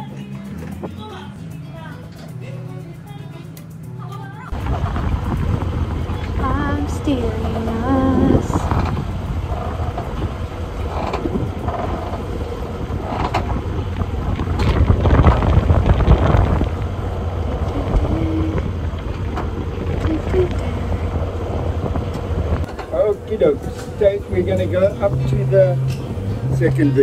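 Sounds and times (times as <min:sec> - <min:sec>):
faint steady hum: 0:00.0 - 0:27.0
wind buffeting microphone: 0:04.5 - 0:27.0.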